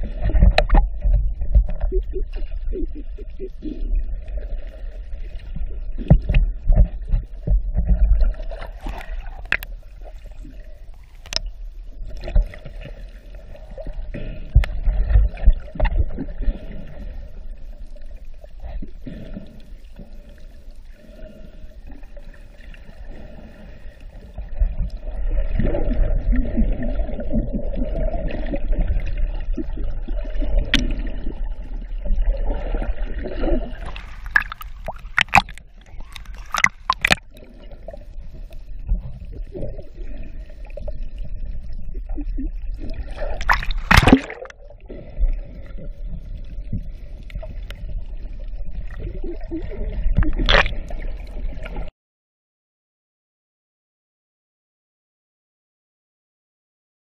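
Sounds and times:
muffled underwater water noise: 0.0s - 51.9s.

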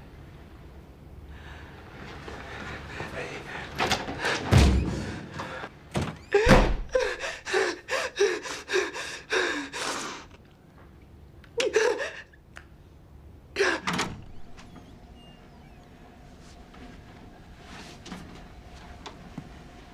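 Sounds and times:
woman sobbing: 6.3s - 9.8s, 11.6s - 12.4s, 13.6s - 14.0s.

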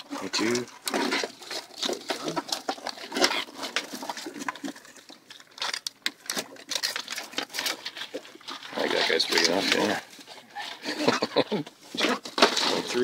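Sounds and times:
crabs clicking and scraping: 0.0s - 13.0s.

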